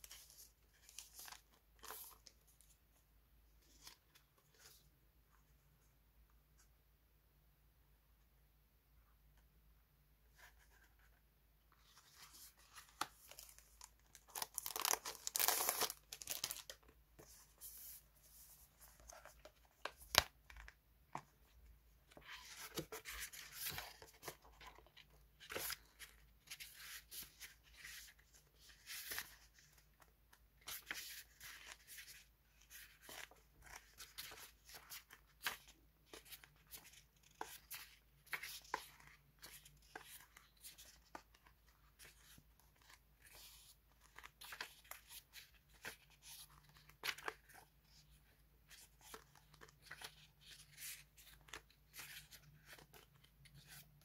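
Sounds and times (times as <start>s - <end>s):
paper pages rustling: 0.0s - 2.8s, 10.3s - 29.9s, 30.6s - 54.0s.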